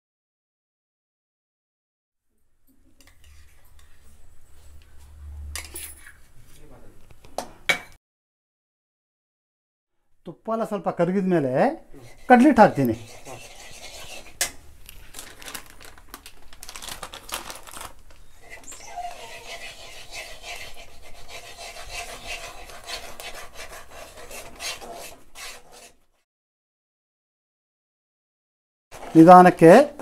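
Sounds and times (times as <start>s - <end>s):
metal spatula scraping pan: 3.0s - 6.3s, 12.0s - 14.6s, 18.4s - 26.0s
plastic packet crinkling: 14.8s - 18.3s.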